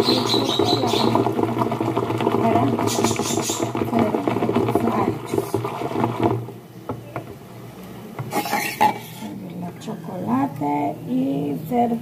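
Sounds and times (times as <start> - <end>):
whisk rattling against pot: 0.0 - 6.6.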